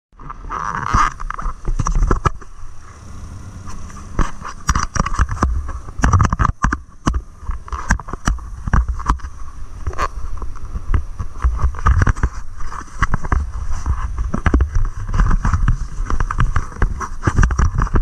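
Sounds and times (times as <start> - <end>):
snowmobile engine whine: 0.9 - 11.8.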